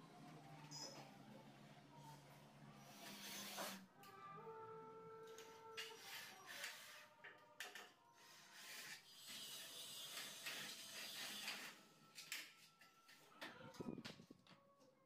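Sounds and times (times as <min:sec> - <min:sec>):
cordless drill driving screws: 0:08.5 - 0:11.8.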